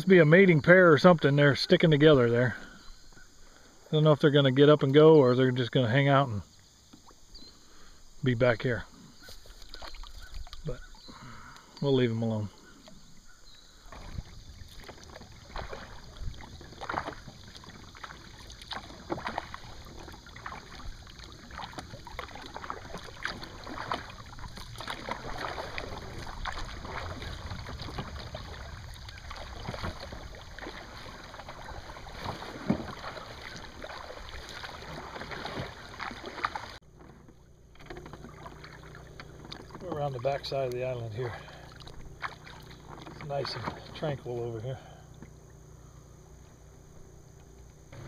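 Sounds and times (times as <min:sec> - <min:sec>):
paddles splashing in water: 0:00.0 - 0:48.0
water lapping at hull: 0:00.0 - 0:48.0
water dripping from paddle blades: 0:09.4 - 0:11.9, 0:12.8 - 0:44.1.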